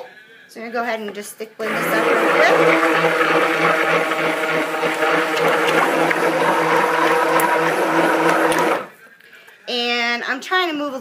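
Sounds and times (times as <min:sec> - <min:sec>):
stick blender motor running: 0:01.6 - 0:08.9.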